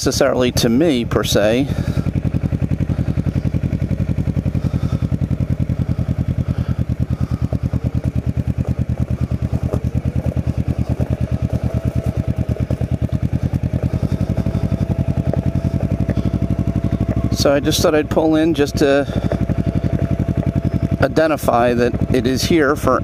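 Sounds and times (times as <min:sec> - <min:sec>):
motorcycle engine idling: 0:00.0 - 0:23.0.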